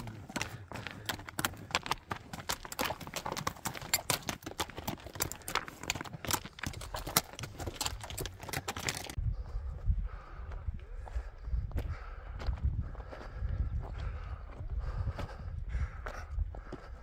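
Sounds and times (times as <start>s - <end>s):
horse hooves clopping on rocks: 0.0s - 9.2s
wind rumble on microphone: 9.1s - 17.0s.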